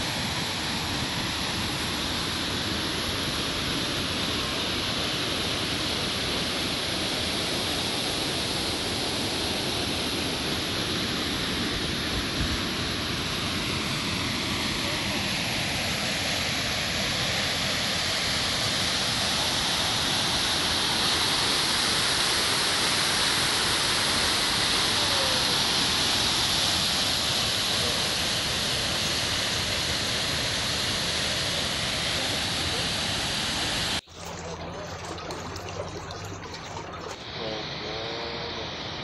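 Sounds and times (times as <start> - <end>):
waterfall pouring: 33.5 - 37.3
water running in stone channel: 33.8 - 37.3.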